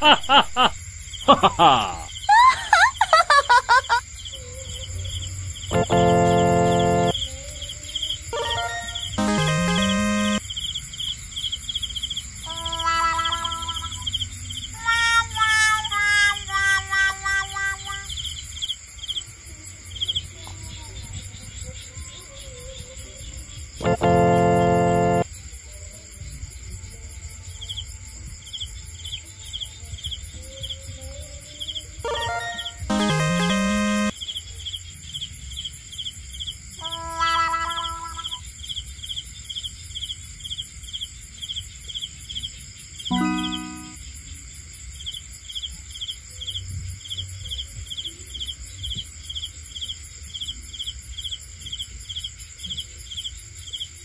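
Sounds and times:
crickets chirping: 0.0 - 9.2, 10.4 - 16.9
high insect buzz: 5.7 - 7.2, 8.9 - 10.4, 23.8 - 25.2.

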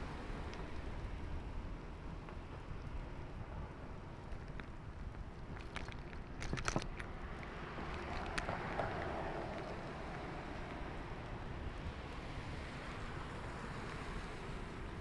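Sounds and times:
bicycle road noise: 0.0 - 15.0
sharp clicks and rattles: 4.3 - 9.8.

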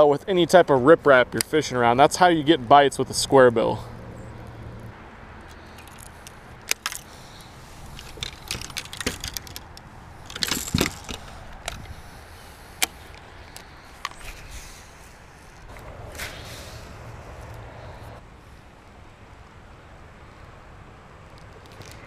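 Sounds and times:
fishing gear clicks and knocks: 5.4 - 16.3, 21.4 - 22.0.

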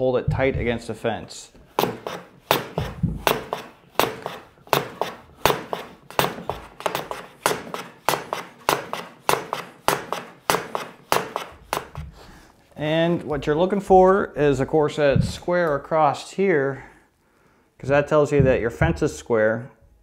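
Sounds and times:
hand plane strokes on end grain: 1.8 - 12.0.

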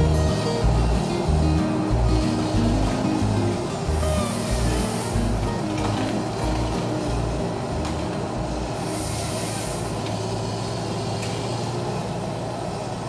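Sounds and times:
harvester diesel engine and hydraulics: 0.0 - 13.0
brief hiss: 2.2 - 7.1, 7.9 - 11.7.

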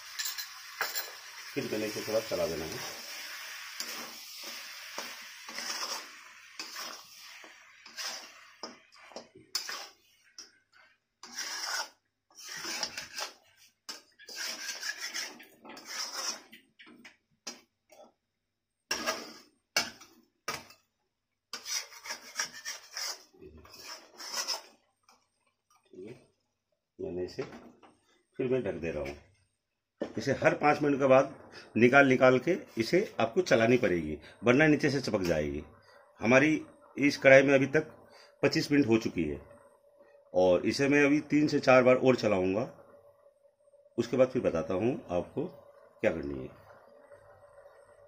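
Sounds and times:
metal spatula scraping a pan: 0.0 - 16.6, 18.9 - 20.8, 21.5 - 24.9.

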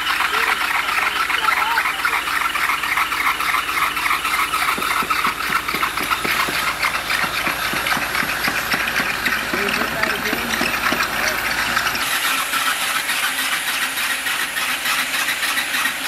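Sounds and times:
machinery running: 0.0 - 16.0
rapid rattling clatter: 0.0 - 16.0.

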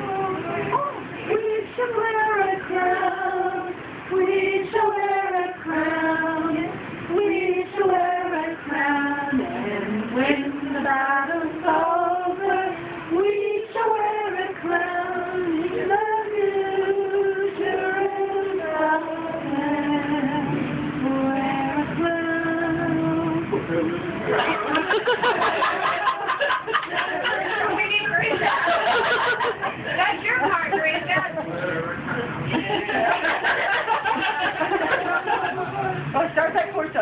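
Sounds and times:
women and children singing: 0.0 - 23.5.

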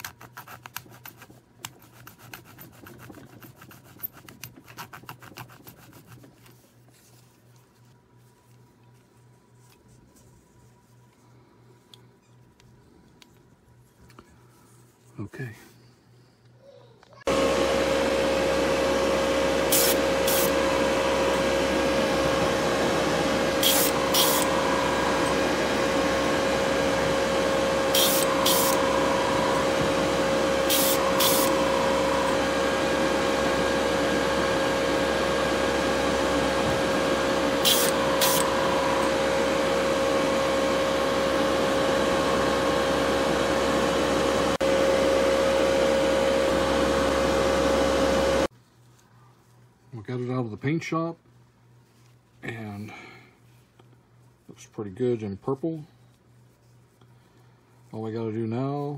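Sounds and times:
exhaust fan humming: 4.2 - 49.0
spray paint hisses: 30.7 - 31.6.

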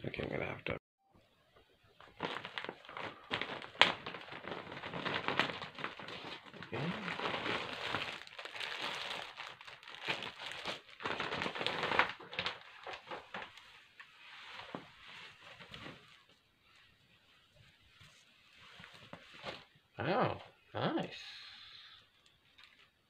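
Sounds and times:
plastic bag crinkling: 2.0 - 16.4, 22.4 - 23.0.

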